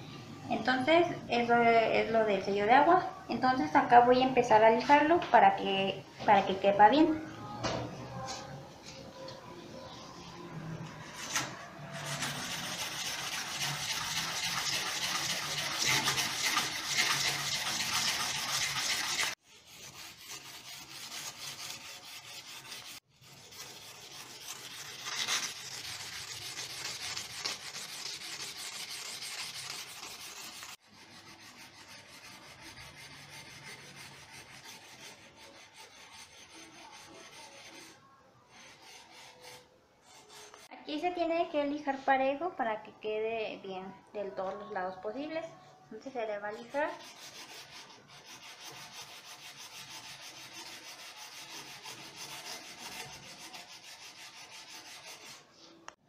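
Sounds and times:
sandpaper scraping a metal shaft: 11.1s - 40.7s, 46.6s - 55.8s.

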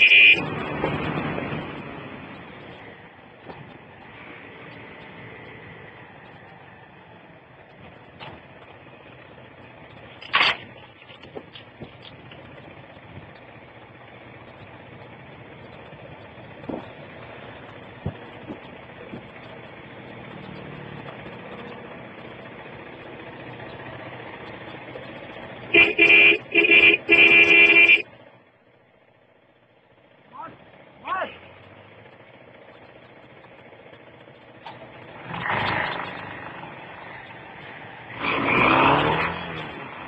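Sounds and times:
vehicle horn honking: 0.0s - 0.4s, 25.7s - 28.1s
wind and road noise: 0.0s - 40.0s.

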